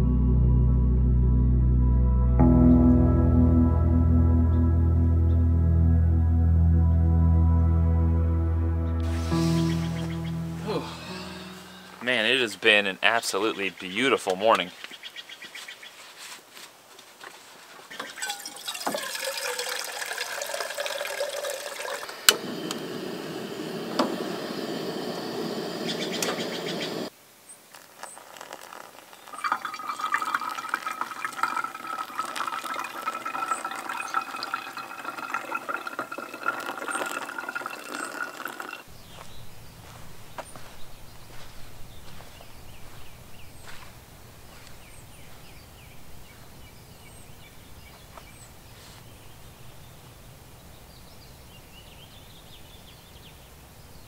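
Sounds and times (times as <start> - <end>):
water pouring into a pot: 18.0 - 24.8, 27.8 - 38.9.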